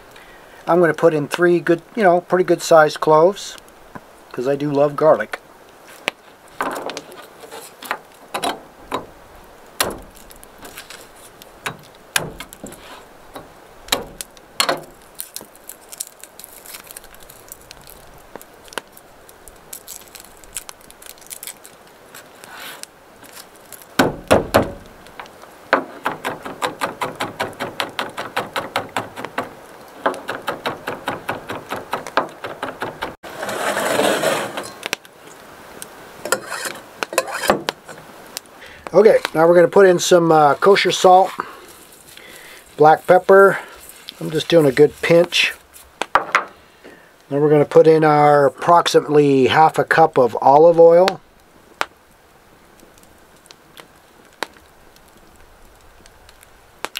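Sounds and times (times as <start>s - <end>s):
knife scraping cutting board: 33.3s - 34.8s, 36.3s - 37.6s.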